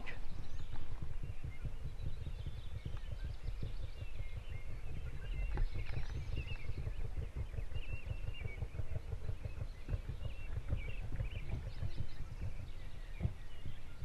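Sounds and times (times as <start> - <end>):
faint songbirds chirping: 0.0 - 14.0
wind buffeting microphone: 0.0 - 14.0.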